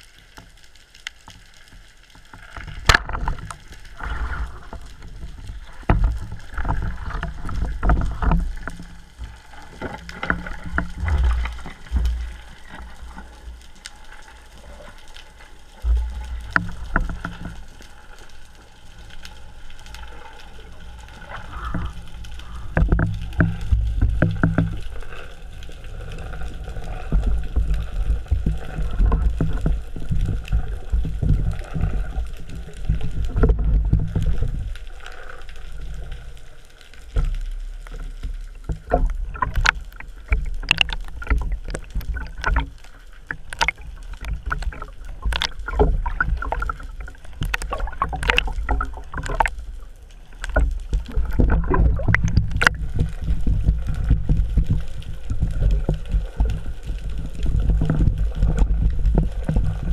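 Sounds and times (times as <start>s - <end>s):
muffled underwater water rumble: 0.0s - 59.9s
sharp clicks and knocks: 22.7s - 24.9s, 38.2s - 49.6s, 50.4s - 54.9s.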